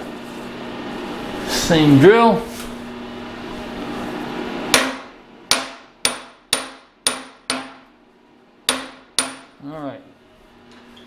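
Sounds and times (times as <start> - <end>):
hammer tapping metal: 4.7 - 7.9, 8.7 - 9.6.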